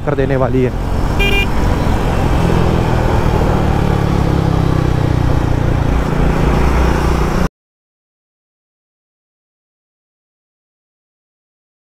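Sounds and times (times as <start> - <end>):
motorcycle engine cruising: 0.1 - 7.5.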